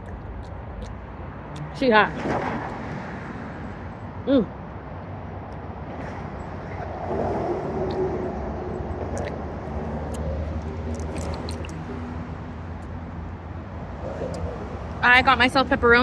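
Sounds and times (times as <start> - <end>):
road traffic rumble: 0.0 - 16.0.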